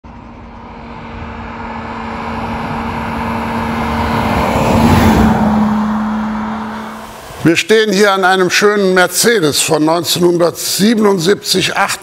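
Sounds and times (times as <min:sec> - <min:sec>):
car engine hum driving past: 0:00.1 - 0:07.7.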